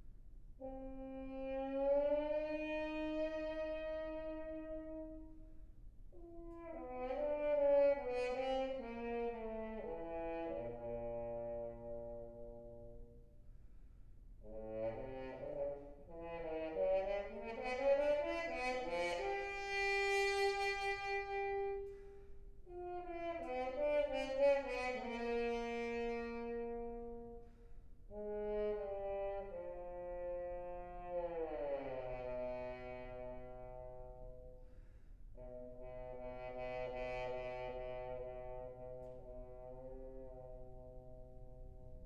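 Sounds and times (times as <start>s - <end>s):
trombone playing: 6.4s - 13.2s, 14.4s - 34.5s, 35.4s - 42.0s.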